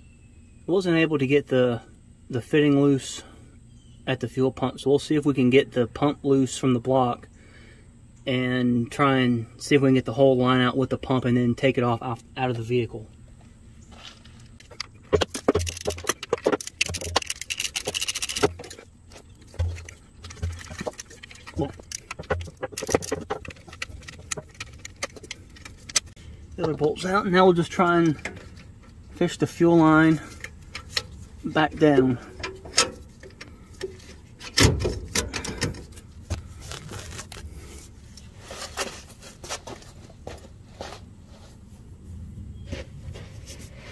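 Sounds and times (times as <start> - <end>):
metal knocks clicks and scrapes: 14.5 - 36.5
socket ratchet clicking: 15.6 - 18.5.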